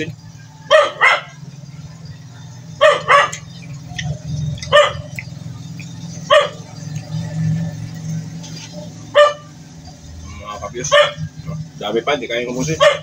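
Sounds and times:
dog barking: 0.6 - 1.4, 2.7 - 3.4, 4.6 - 5.2, 6.2 - 6.7, 9.1 - 9.6, 10.8 - 11.3, 12.7 - 13.0.

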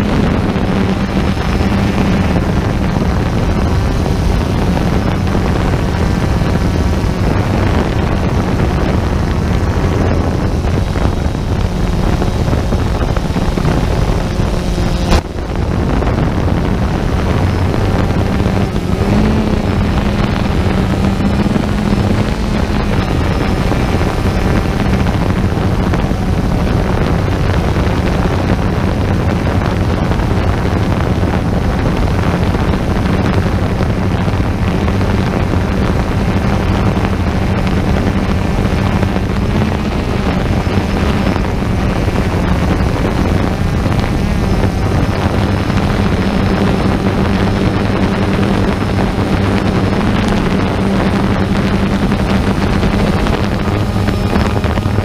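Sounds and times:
vehicle engine running: 0.0 - 55.0
wind on microphone: 0.0 - 55.0.

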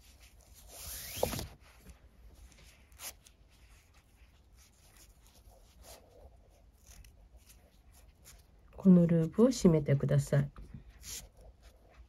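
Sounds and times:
cord handling: 0.1 - 4.0.

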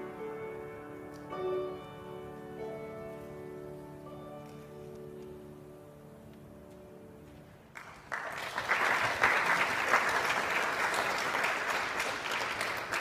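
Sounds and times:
grand piano notes: 0.0 - 7.8
audience applause: 7.7 - 13.0.

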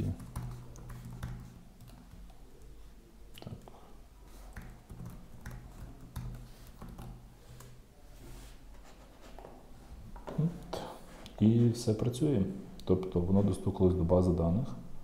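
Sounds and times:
computer keys typing: 0.0 - 2.7, 4.5 - 7.8.

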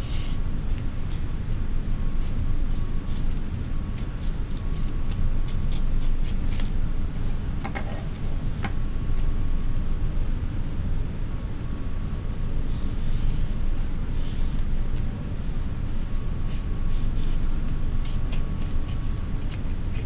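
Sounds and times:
low background rumble: 0.0 - 20.0
marker scratching on paper: 16.5 - 18.3.

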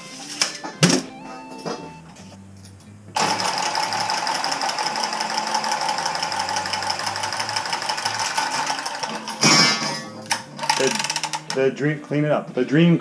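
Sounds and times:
tubing cutter whining: 3.1 - 9.6.

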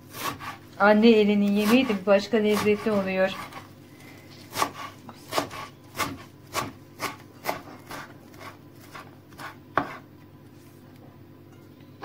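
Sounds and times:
knife chopping on wooden board: 0.1 - 0.6, 1.5 - 3.6, 4.5 - 10.0.

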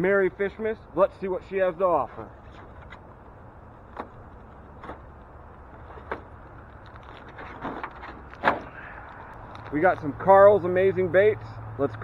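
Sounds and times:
cardboard crackling and rustling: 3.8 - 8.8.

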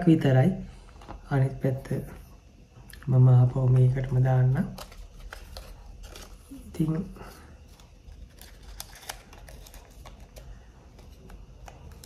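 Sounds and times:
paper crinkling: 4.6 - 12.0.

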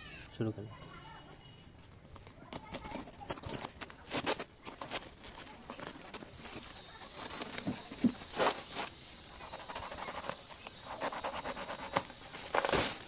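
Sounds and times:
plastic crinkling: 1.8 - 13.0
cardboard ripping: 2.6 - 13.0.

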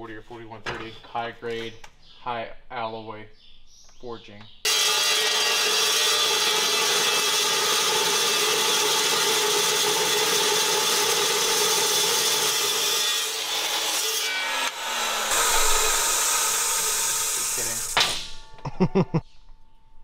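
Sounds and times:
chop saw cutting metal: 4.7 - 18.6.

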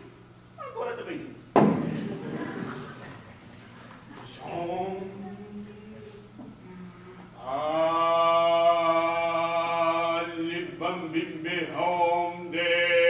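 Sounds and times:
person chanting: 4.3 - 13.0.

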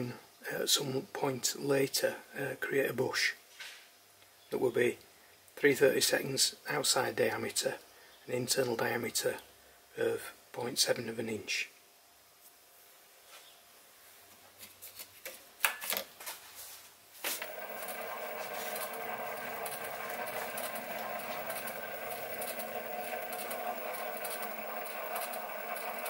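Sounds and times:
lathe motor humming: 17.4 - 26.0.

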